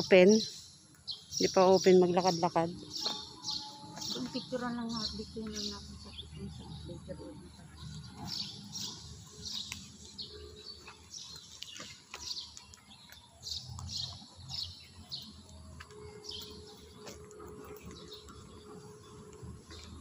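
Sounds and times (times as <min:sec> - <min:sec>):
bird chirping high: 0:00.0 - 0:06.9, 0:07.8 - 0:15.4.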